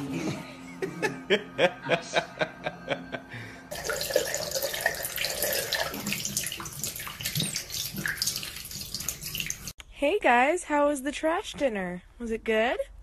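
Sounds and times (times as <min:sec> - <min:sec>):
tap water running and splashing: 0:03.7 - 0:09.8.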